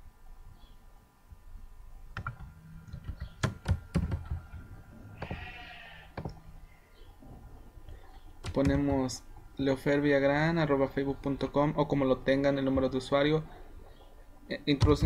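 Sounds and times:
mouse and keyboard clicks: 2.1 - 4.4, 8.4 - 9.0.

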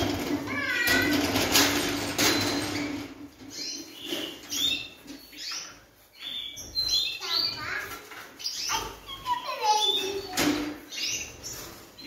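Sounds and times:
metal trolley rolling on concrete: 0.0 - 6.1
birds chirping: 0.0 - 12.0.

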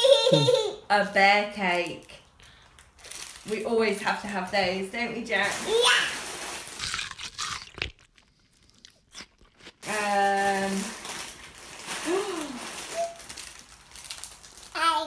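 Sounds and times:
person humming: 0.3 - 0.6
plastic wrappers crinkling: 1.6 - 15.0.

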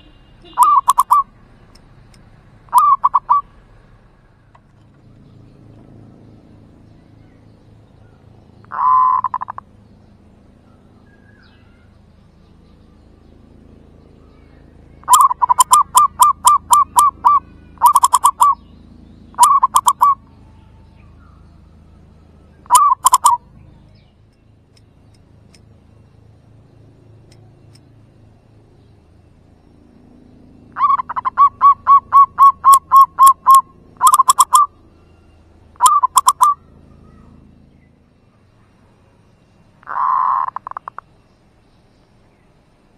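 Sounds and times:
dove cooing: 0.0 - 1.3, 2.7 - 3.5, 8.6 - 9.7, 15.0 - 18.6, 19.3 - 21.3, 22.6 - 23.6, 30.7 - 34.8, 35.7 - 37.4, 39.8 - 41.1.

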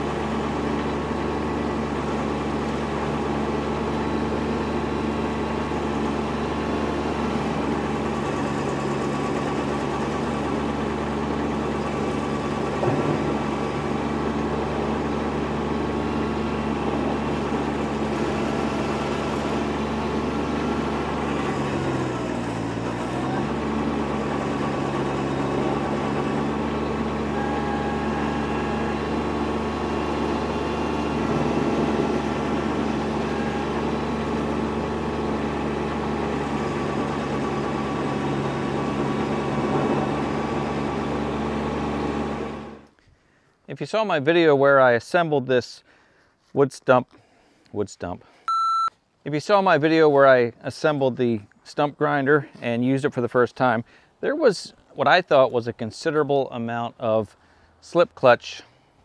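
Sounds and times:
stump grinder grinding stump: 0.0 - 43.0
tractor diesel engine running: 0.0 - 43.0.

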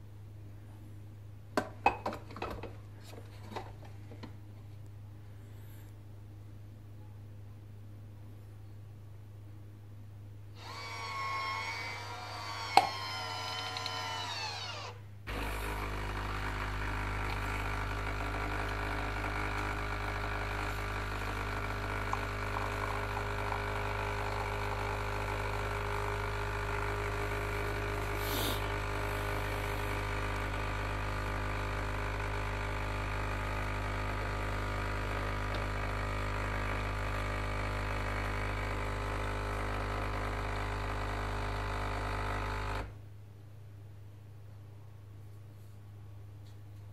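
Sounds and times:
capsule coffee machine pump buzzing: 10.6 - 43.0.

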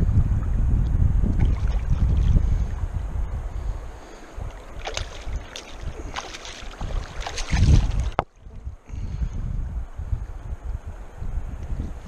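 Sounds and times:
wind buffeting microphone: 0.0 - 12.0
fish splashing at water surface: 4.5 - 8.2.

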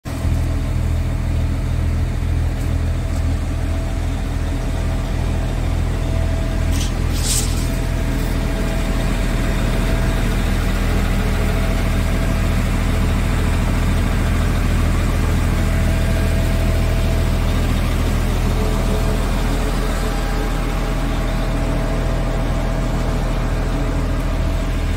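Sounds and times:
diesel truck engine idling: 0.1 - 24.9.

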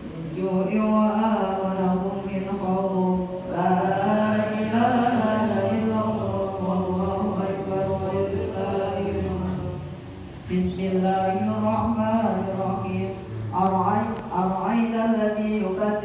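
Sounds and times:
man chanting recitation: 0.1 - 16.0.

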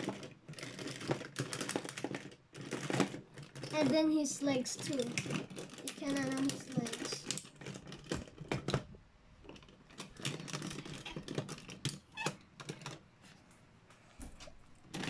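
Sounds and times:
plastic toy parts clicking: 0.0 - 8.8.

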